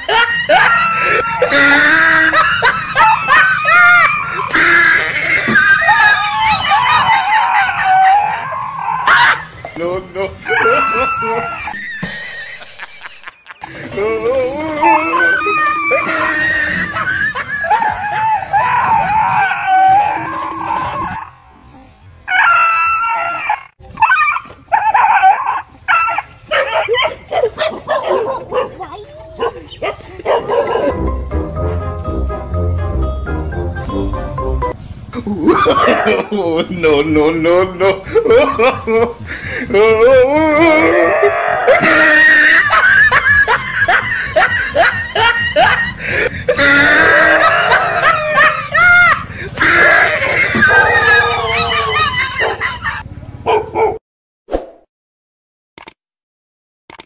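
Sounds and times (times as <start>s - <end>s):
person laughing loudly: 0.0s - 5.6s, 9.8s - 18.7s, 35.2s - 53.0s
dog yelping and howling: 0.0s - 12.0s, 14.1s - 21.4s, 22.3s - 28.8s, 29.4s - 31.0s, 38.1s - 39.0s, 39.8s - 54.0s
dog crying out: 0.0s - 21.4s, 22.3s - 28.7s, 38.1s - 39.0s, 39.7s - 54.0s.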